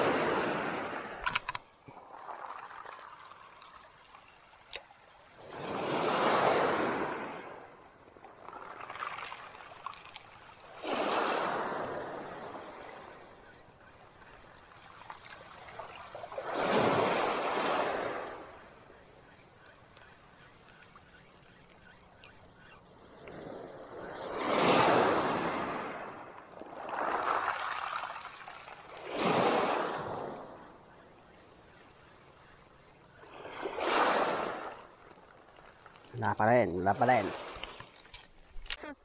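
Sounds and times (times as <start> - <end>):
waves washing onto pebbles: 5.4 - 7.6, 8.4 - 13.1, 14.9 - 18.5, 24.2 - 30.6, 33.3 - 36.3
steady hiss of sea: 10.5 - 13.2.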